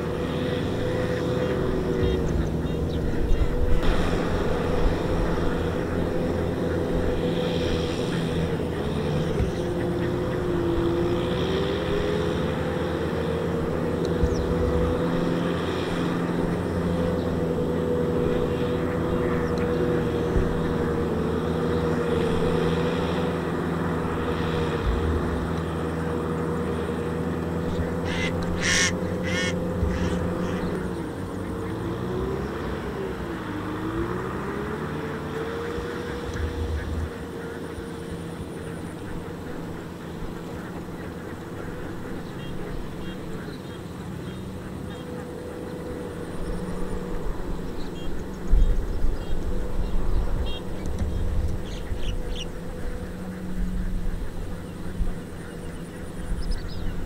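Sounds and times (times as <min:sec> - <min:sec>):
tractor diesel engine running: 0:00.0 - 0:57.0
short high-pitched squawks: 0:28.0 - 0:30.2.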